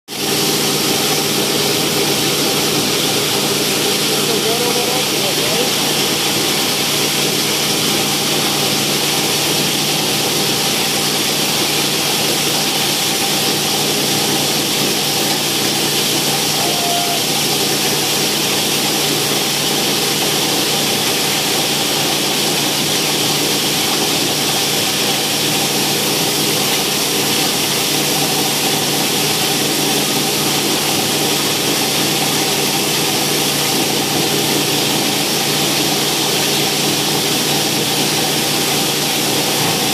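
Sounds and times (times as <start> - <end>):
plastic granulator grinding bottles: 0.1 - 39.9.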